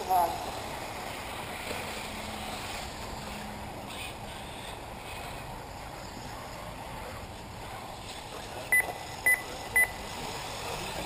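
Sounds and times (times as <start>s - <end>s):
background noise: 0.0s - 11.0s
short electronic beeps: 8.7s - 10.0s.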